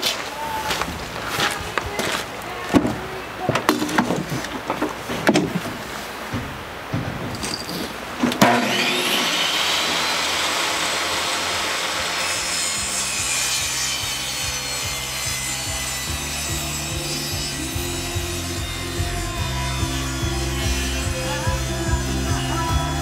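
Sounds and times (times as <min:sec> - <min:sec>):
table saw cutting wood panel: 0:08.4 - 0:23.0
background music: 0:13.2 - 0:23.0.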